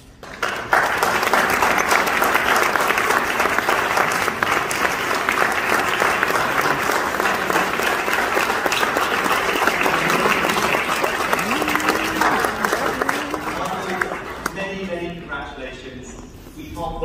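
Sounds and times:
audience applauding: 0.0s - 15.2s.

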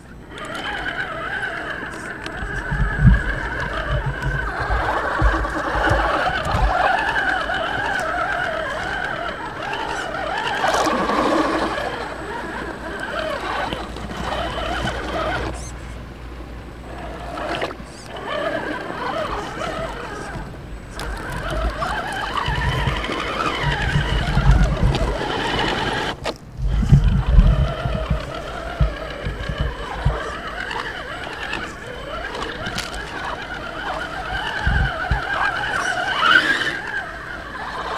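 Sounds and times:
electric motor and gears whining: 0.0s - 37.9s
low rumbles: 0.0s - 37.9s.

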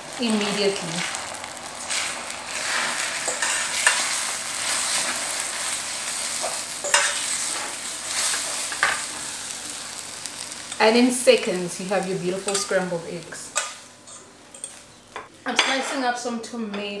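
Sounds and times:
eggs sizzling in a pan: 0.0s - 15.3s
metal fork scraping a pan: 1.9s - 5.2s, 6.4s - 9.1s.

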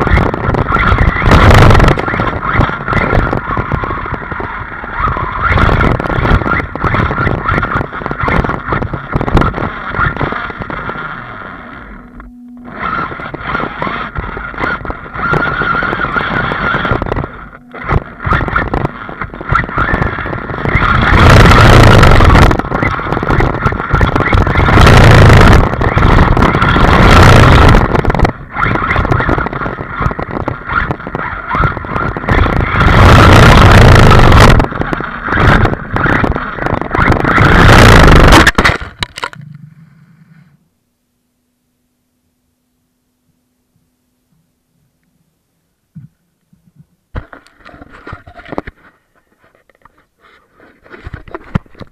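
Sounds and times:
rc truck motor whine: 0.0s - 38.5s.

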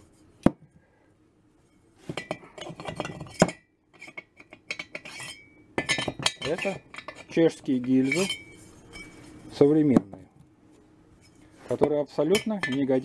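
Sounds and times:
metal liners clinking and knocking: 2.1s - 9.4s, 11.2s - 13.0s.

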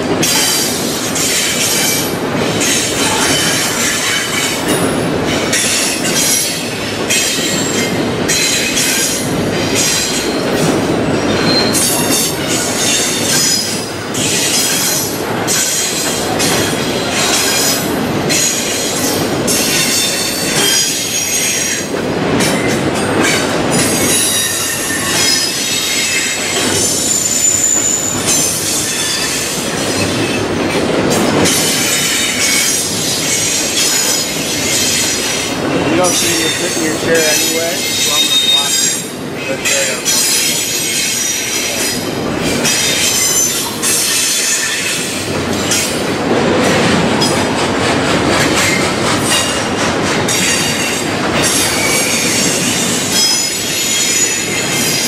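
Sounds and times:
train cars rumbling and rattling: 0.0s - 55.0s
steel wheels squealing: 0.2s - 21.9s, 22.6s - 45.9s, 50.3s - 55.0s.

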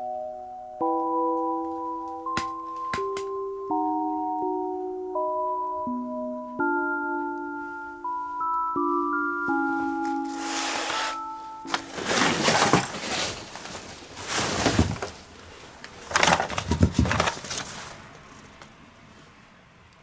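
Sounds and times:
rustling crunching noise: 9.8s - 18.6s.

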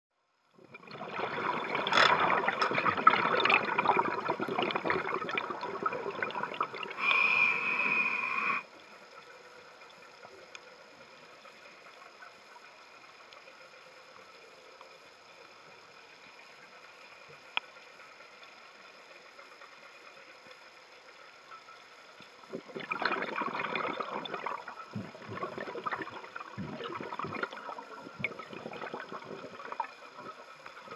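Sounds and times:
diver's bubbles gurgling: 0.6s - 8.6s, 22.5s - 30.9s
regulator hiss: 1.1s - 30.9s.

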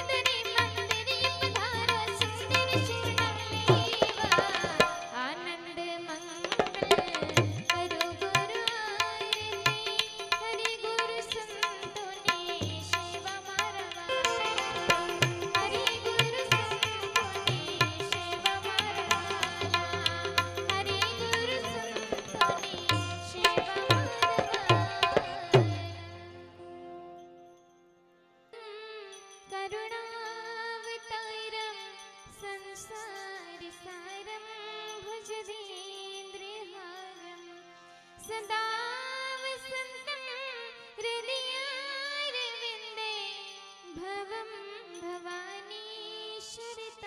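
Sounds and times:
tabla drumming: 0.0s - 5.3s, 6.4s - 26.4s.

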